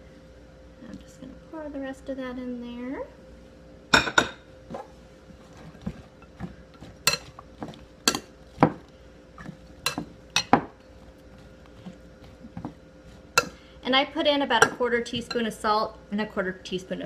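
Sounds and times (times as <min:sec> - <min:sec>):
tongs clinking in a glass bowl: 0:07.1 - 0:07.3.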